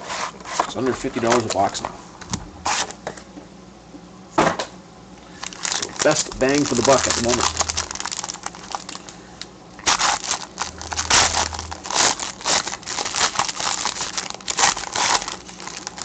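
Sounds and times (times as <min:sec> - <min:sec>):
foil wrapper crinkling: 0:05.3 - 0:16.0.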